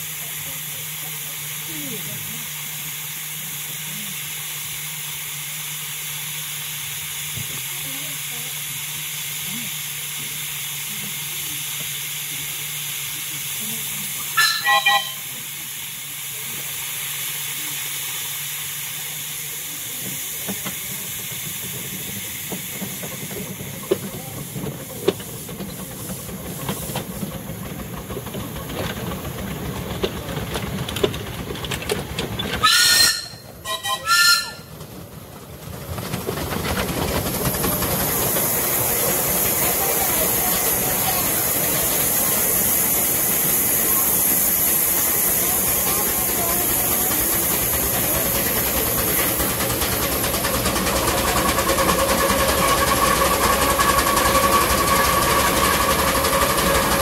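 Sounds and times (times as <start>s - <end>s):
steam hissing: 0.0s - 57.0s
steam locomotive running: 0.0s - 57.0s
train whistle: 14.4s - 15.3s, 32.6s - 34.7s.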